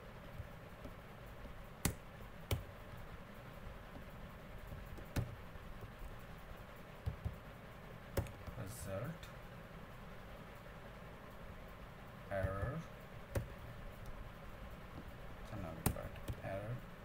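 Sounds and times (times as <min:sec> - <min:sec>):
faint room hiss: 0:00.0 - 0:17.0
keyboard and mouse clicks: 0:01.8 - 0:02.7.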